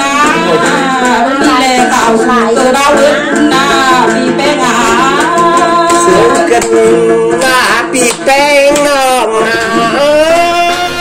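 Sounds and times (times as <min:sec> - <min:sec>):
woman singing into a microphone: 0:00.0 - 0:08.0
plucked lute: 0:00.0 - 0:11.0.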